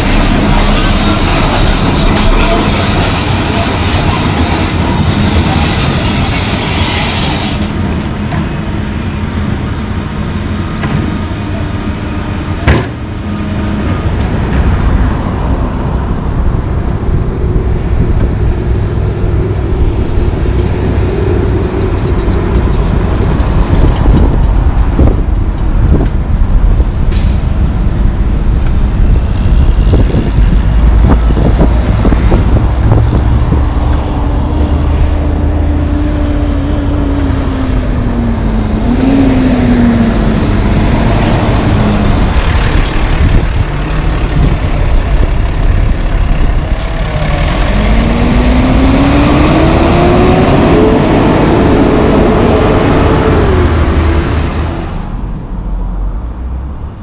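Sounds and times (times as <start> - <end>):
heavy trucks rumbling past: 0.0 - 57.0
truck pulling away: 31.4 - 56.7.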